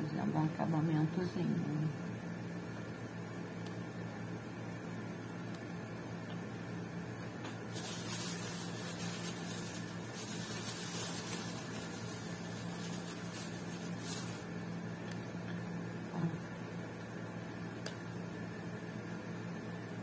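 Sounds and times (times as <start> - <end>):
low electrical hum: 0.0 - 20.0
plastic bag crinkling: 7.6 - 14.5.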